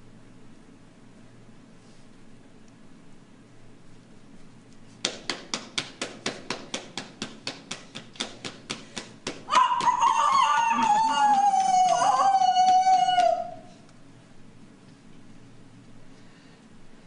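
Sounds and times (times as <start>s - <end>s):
drawn-out falling call: 9.5s - 13.7s.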